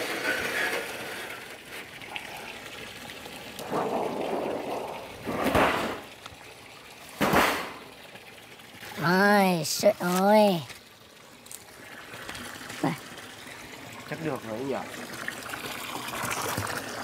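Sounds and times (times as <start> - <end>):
water splashing: 0.0 - 17.0.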